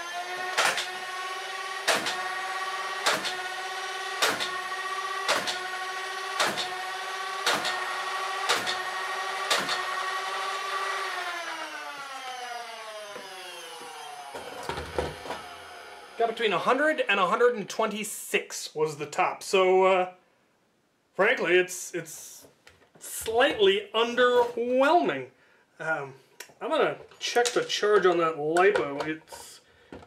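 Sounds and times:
flywheel motors whining: 0:00.0 - 0:16.2
toy darts firing with snap: 0:01.8 - 0:02.2, 0:03.0 - 0:03.4, 0:04.2 - 0:04.6, 0:05.2 - 0:05.6, 0:06.4 - 0:06.7, 0:09.5 - 0:09.8.

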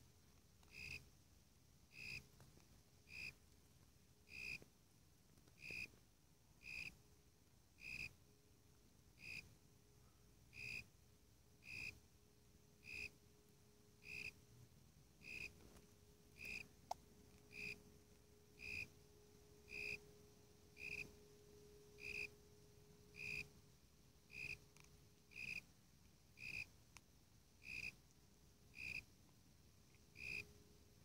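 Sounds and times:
cricket chirps: 0:00.6 - 0:01.1, 0:01.9 - 0:02.4, 0:03.0 - 0:03.4, 0:04.2 - 0:04.6, 0:05.5 - 0:06.0, 0:06.6 - 0:07.0, 0:07.8 - 0:08.2, 0:09.2 - 0:11.0, 0:11.6 - 0:12.0, 0:12.8 - 0:13.2, 0:14.0 - 0:14.4, 0:15.2 - 0:15.6, 0:16.4 - 0:25.7, 0:26.3 - 0:26.8, 0:27.6 - 0:28.0, 0:28.7 - 0:29.2, 0:29.8 - 0:30.9.

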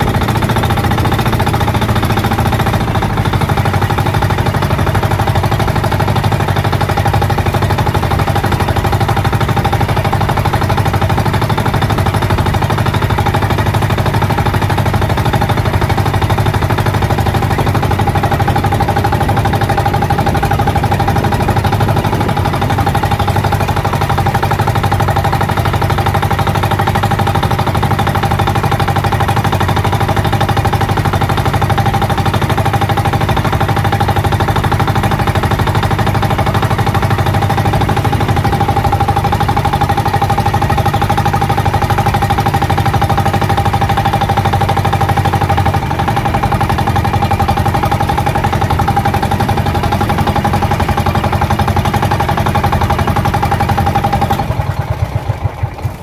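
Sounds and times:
boat engine puttering: 0:00.0 - 0:56.0.

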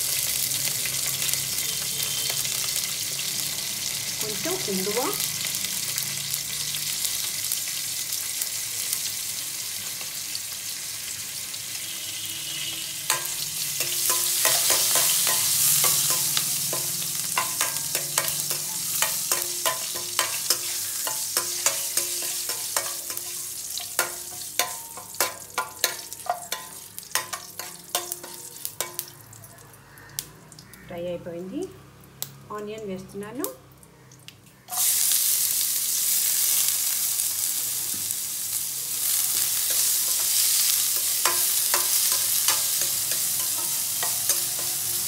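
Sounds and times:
hot oil sizzling: 0:00.0 - 0:45.0
spatula clicking against steel pan: 0:13.1 - 0:29.1, 0:41.0 - 0:45.0.

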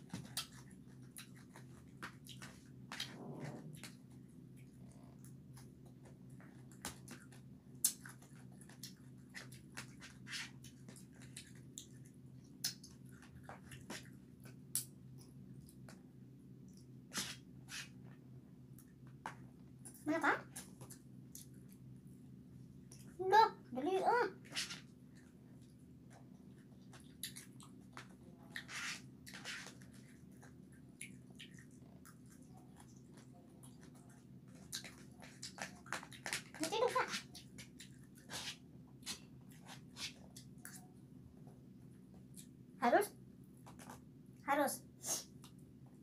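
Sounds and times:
chewing and mouth smacks: 0:00.0 - 0:16.1, 0:16.7 - 0:21.9, 0:22.8 - 0:23.2, 0:24.7 - 0:42.6, 0:45.2 - 0:45.8
low steady hum: 0:00.0 - 0:46.0.

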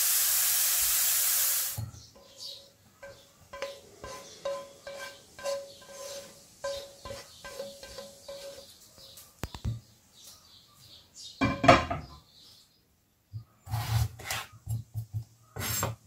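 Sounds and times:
carrot scraped from frying pan: 0:03.0 - 0:08.7, 0:13.7 - 0:14.6, 0:15.6 - 0:16.0.

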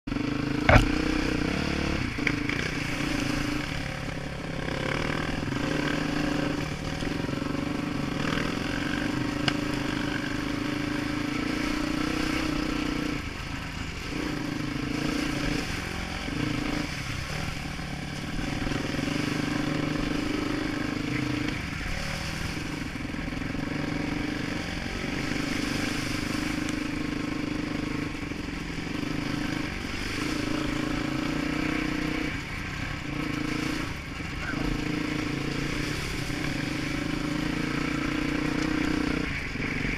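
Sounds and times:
dirt bike engine: 0:00.1 - 0:39.9
sharp knock: 0:00.7 - 0:01.0.

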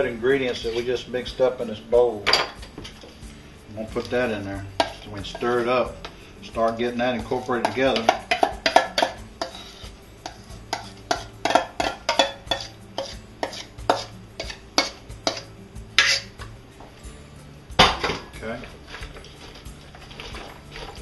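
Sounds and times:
metal spoon scraping steel bowl: 0:03.8 - 0:16.4.

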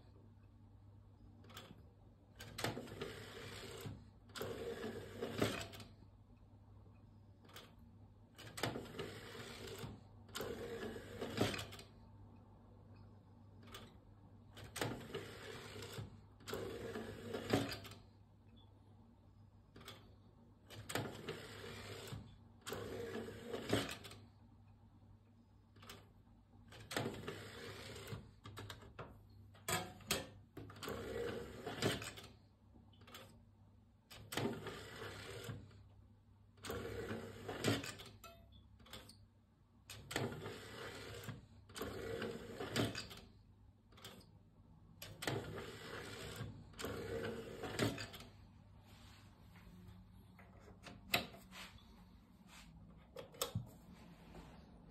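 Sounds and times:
cd player mechanism whirring: 0:08.4 - 0:11.9, 0:13.7 - 0:18.0, 0:20.7 - 0:24.2, 0:26.7 - 0:28.8, 0:39.9 - 0:43.3, 0:45.0 - 0:48.4.

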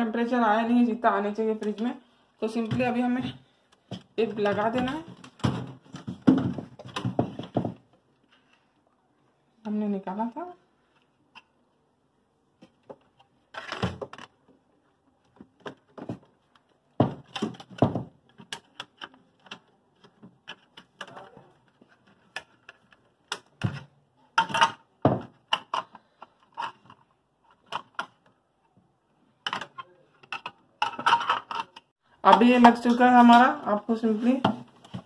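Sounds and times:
plastic parts clicking and knocking: 0:02.6 - 0:08.5, 0:12.6 - 0:28.4, 0:29.3 - 0:33.5.

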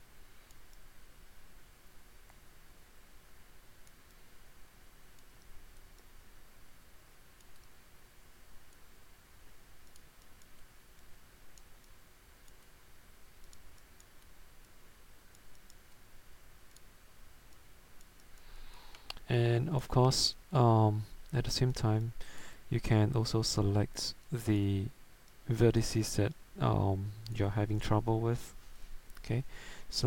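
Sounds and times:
low hiss: 0:00.0 - 0:30.0
computer mouse clicks: 0:07.4 - 0:07.8, 0:09.8 - 0:12.7, 0:13.4 - 0:16.0, 0:16.7 - 0:16.9, 0:17.5 - 0:19.2.

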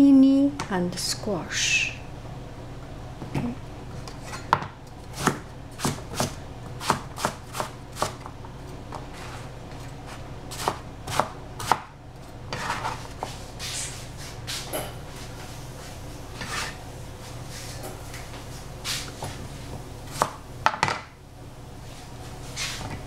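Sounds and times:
knife chopping on cutting board: 0:04.5 - 0:08.3, 0:10.5 - 0:11.9, 0:20.1 - 0:21.1.

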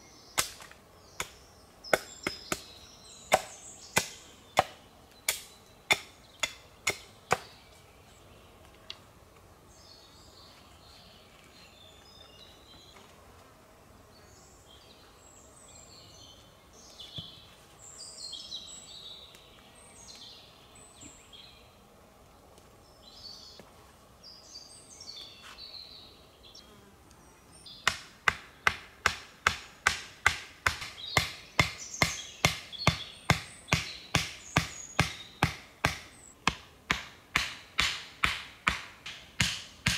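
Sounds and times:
wood chopping strikes: 0:00.4 - 0:02.7, 0:03.3 - 0:07.5, 0:27.8 - 0:39.9
high chirping calls: 0:30.9 - 0:36.4.

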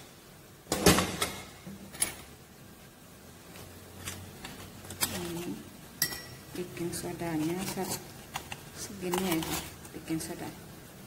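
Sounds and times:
kitchenware clattering: 0:06.0 - 0:06.4.

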